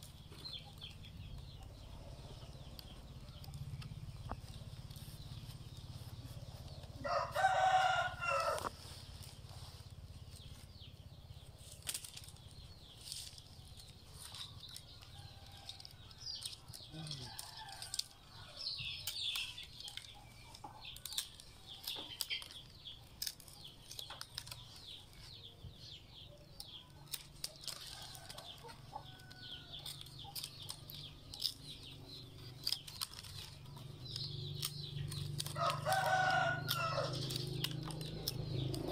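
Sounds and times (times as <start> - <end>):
rooster crowing: 7.0 - 8.7, 35.6 - 37.3.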